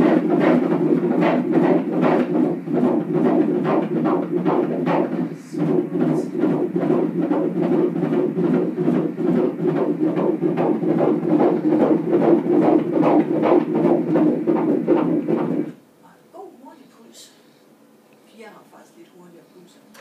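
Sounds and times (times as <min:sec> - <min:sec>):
doppler fetal heartbeat: 0:00.0 - 0:15.8.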